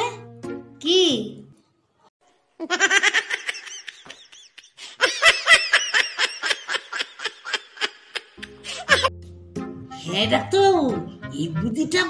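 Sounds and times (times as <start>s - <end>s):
person laughing high-pitched: 2.6s - 9.1s.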